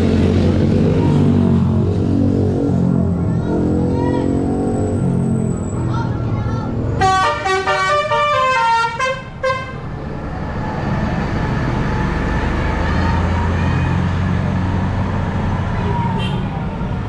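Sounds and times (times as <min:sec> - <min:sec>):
bus diesel engine: 0:00.0 - 0:17.0
musical air horns: 0:07.0 - 0:09.8.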